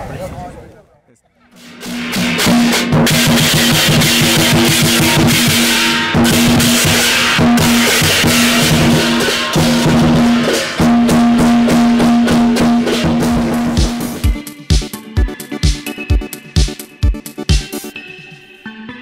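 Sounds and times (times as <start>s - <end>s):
rock music with drums: 1.6s - 18.4s.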